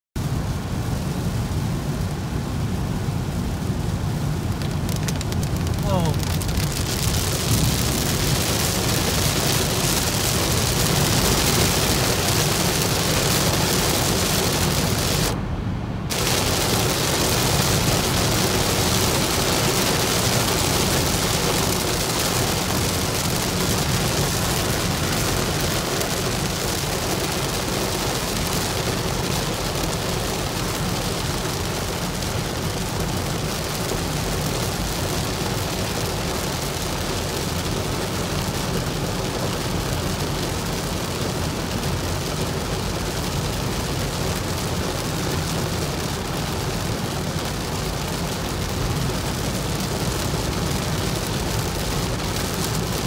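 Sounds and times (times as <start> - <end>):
heavy rain on car: 0.2 - 53.0
road noise: 0.2 - 53.0.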